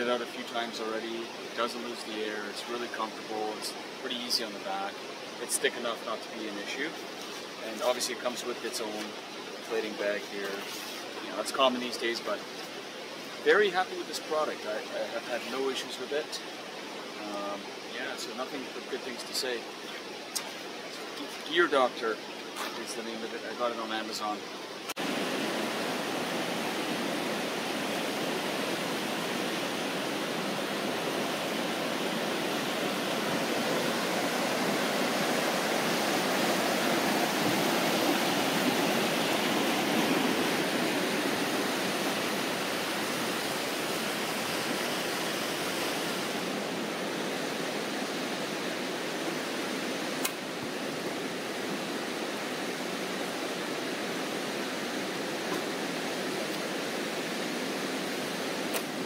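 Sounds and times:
river water rushing: 0:00.0 - 0:59.0
sharp click: 0:50.2 - 0:50.4.

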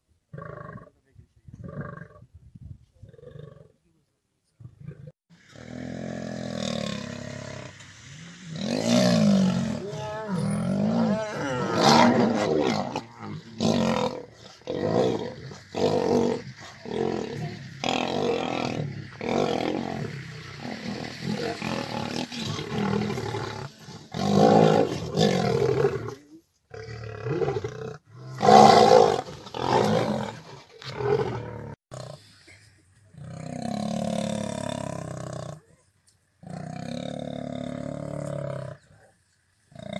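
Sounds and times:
lions roaring and snarling: 0:04.9 - 0:32.3, 0:36.4 - 0:39.1.

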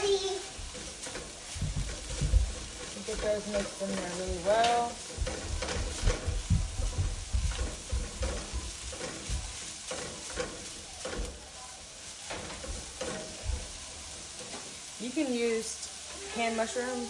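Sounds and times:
meat sizzling in a frying pan: 0:00.0 - 0:17.0
spatula scraping a pan: 0:00.0 - 0:17.0.

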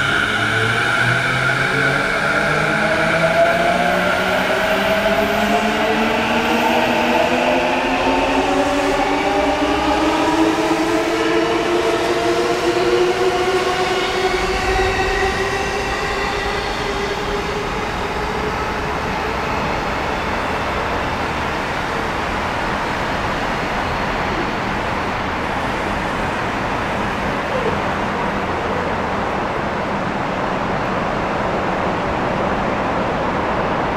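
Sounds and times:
electric train inverter whine: 0:00.0 - 0:33.9.

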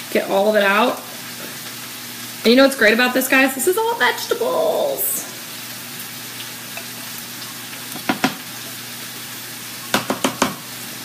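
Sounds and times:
food sizzling in a pan: 0:00.0 - 0:11.0
spatula knocking on glass bowl: 0:09.9 - 0:10.6.

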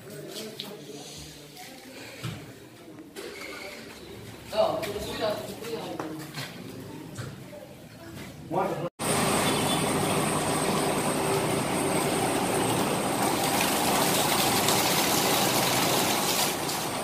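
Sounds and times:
diesel engine running: 0:09.0 - 0:17.0.

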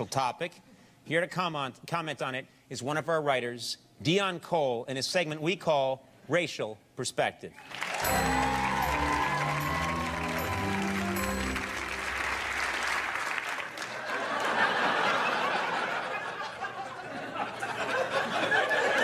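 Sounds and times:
audience applauding: 0:07.6 - 0:15.7
audience laughing: 0:13.8 - 0:19.0.

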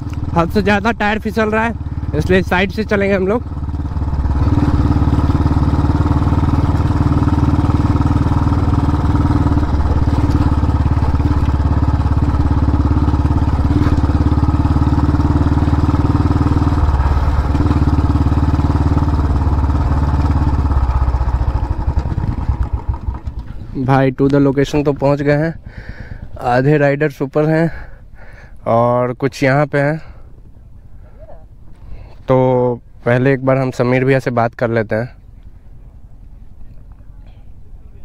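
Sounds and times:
motorcycle engine running: 0:00.0 - 0:26.9.

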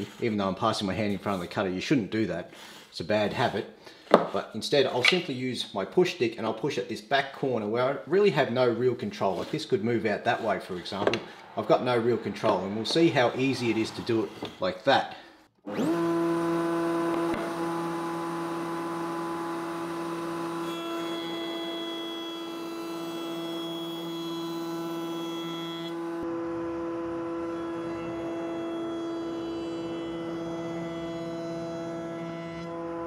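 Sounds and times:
router bit cutting wood: 0:15.7 - 0:33.0
router motor whine: 0:15.7 - 0:33.0.

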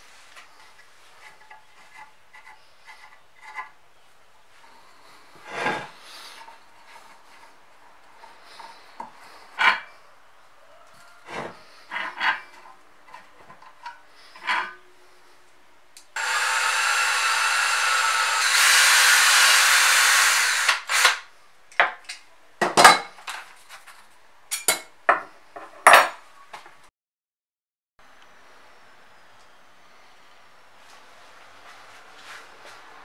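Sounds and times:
cordless drill spinning: 0:16.2 - 0:21.3.

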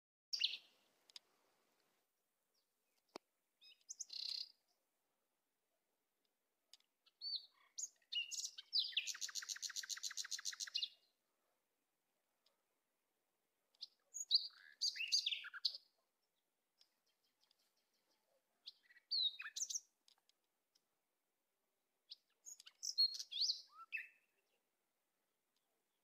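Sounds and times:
songbird chirping: 0:00.3 - 0:26.0
rapid bird trill: 0:07.7 - 0:10.9.

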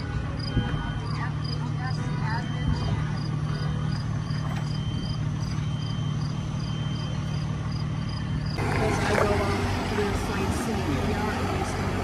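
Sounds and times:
cricket chirping: 0:00.0 - 0:08.6.

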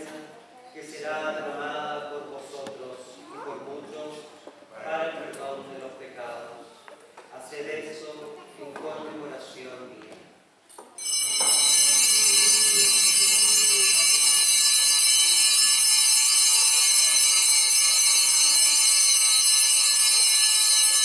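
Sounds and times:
bells ringing continuously: 0:11.0 - 0:21.0.

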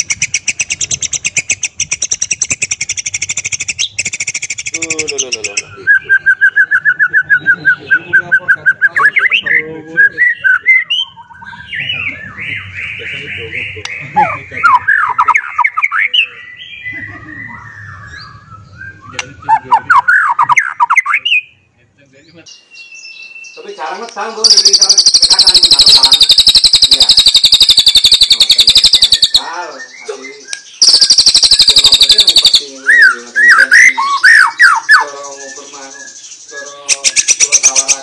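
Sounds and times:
fast high-pitched bird trill: 0:00.0 - 0:09.6, 0:24.2 - 0:38.0
bird whistling song: 0:00.0 - 0:21.7, 0:22.4 - 0:38.0.

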